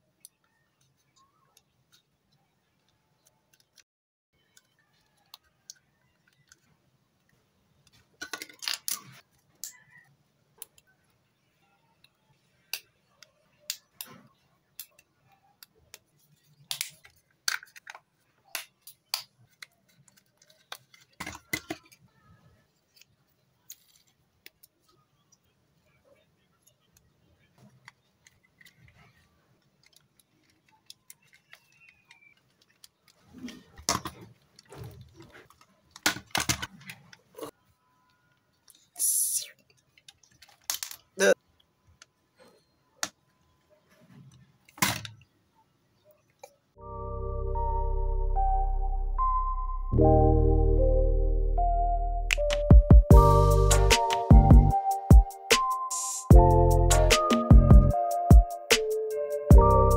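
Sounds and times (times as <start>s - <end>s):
plastic model parts clicking: 0.2s - 3.8s, 4.4s - 11.2s, 12.0s - 22.1s, 26.6s - 33.2s, 38.6s - 42.1s.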